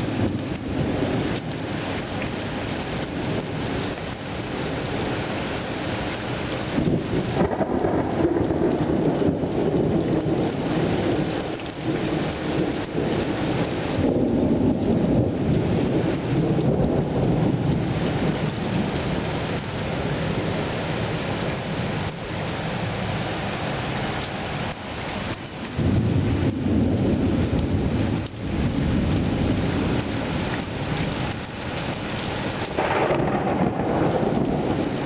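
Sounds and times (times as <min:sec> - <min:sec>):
heavy rain pouring: 0:00.0 - 0:35.0
thunder rumbling: 0:06.7 - 0:23.9, 0:24.6 - 0:35.0.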